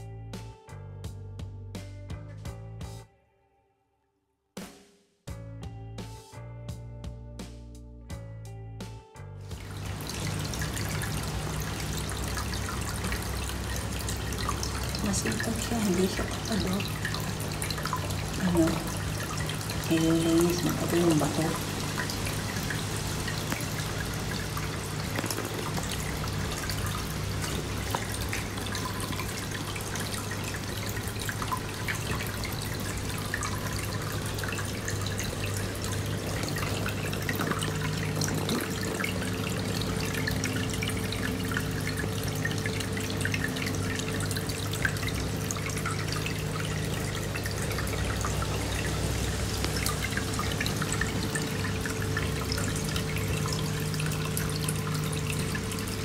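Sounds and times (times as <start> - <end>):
water trickling and dripping: 9.4 - 56.0
air bubbles popping: 23.4 - 29.0, 34.7 - 41.8.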